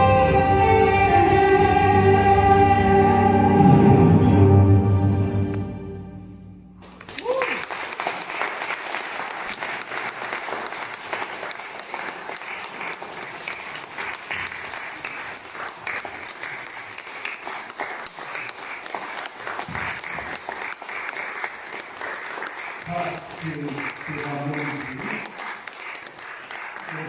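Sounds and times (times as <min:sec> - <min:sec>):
audience applauding: 0:06.8 - 0:27.0.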